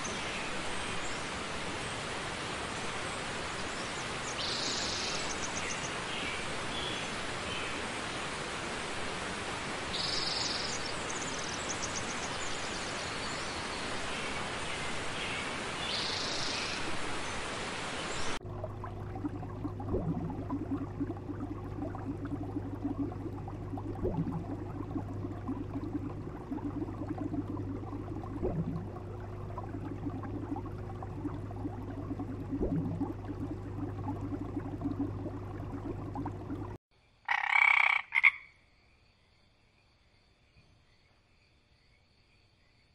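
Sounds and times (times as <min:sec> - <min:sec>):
low hum with pulsing drone: 0:18.3 - 0:36.8
frog croak: 0:37.2 - 0:38.6.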